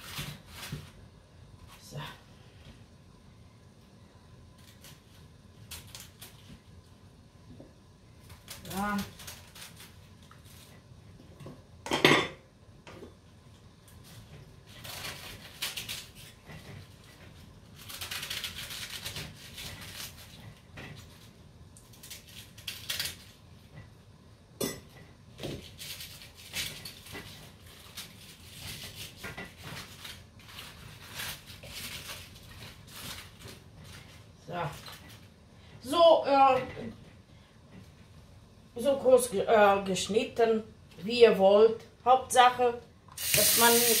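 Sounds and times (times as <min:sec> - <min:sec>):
knife cutting cabbage leaves: 0:00.0 - 0:01.0, 0:08.2 - 0:10.7, 0:14.7 - 0:20.4, 0:21.8 - 0:23.4, 0:25.6 - 0:33.6.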